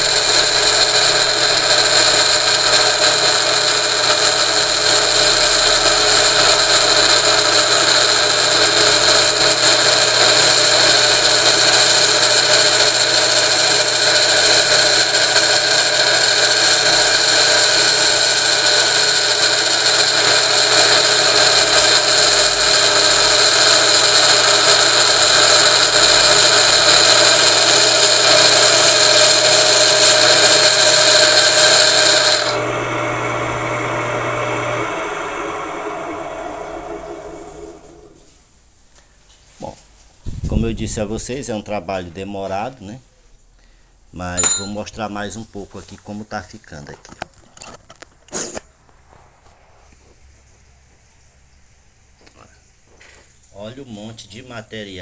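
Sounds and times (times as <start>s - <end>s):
drill bit scraping metal whine: 0.0s - 38.3s, 44.4s - 44.8s
electric motor hum: 0.0s - 38.3s.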